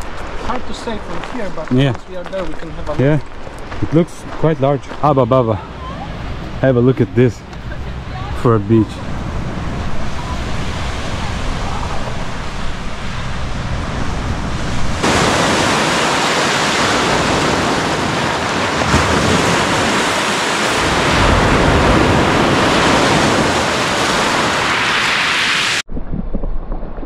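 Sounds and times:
surf: 0:04.9 - 0:25.8
wind rushing: 0:07.4 - 0:26.5.

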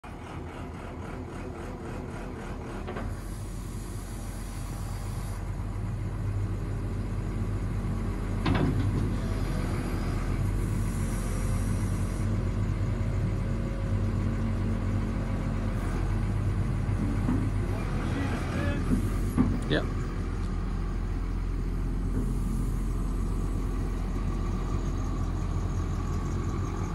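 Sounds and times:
excavator diesel engine running: 0:00.0 - 0:26.9
high hydraulic hiss: 0:03.0 - 0:05.5, 0:10.6 - 0:12.4.

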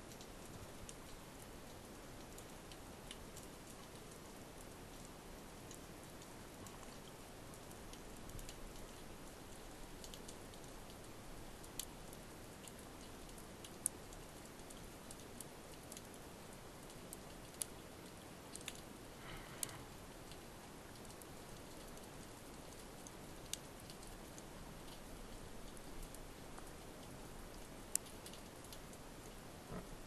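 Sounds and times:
sharp clicks and crackles: 0:00.1 - 0:05.1, 0:10.0 - 0:16.2, 0:16.8 - 0:29.9
faint underwater hiss: 0:19.0 - 0:20.2.

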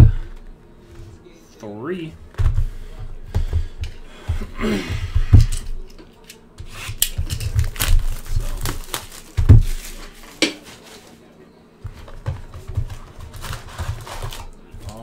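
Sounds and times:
plastic wrap crinkling: 0:07.2 - 0:11.1.

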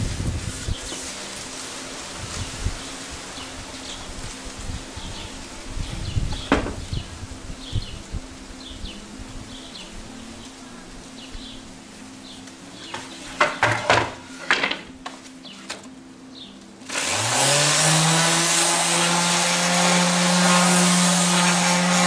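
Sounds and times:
low steady hum: 0:00.0 - 0:17.2
knocks: 0:06.5 - 0:06.8.

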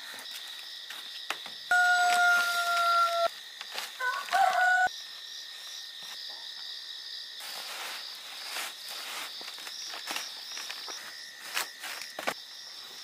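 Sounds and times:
night insects chirring: 0:00.0 - 0:13.0
short wavering pitched call: 0:01.7 - 0:03.3
tea leaves rustling on bamboo tray: 0:07.4 - 0:10.8.

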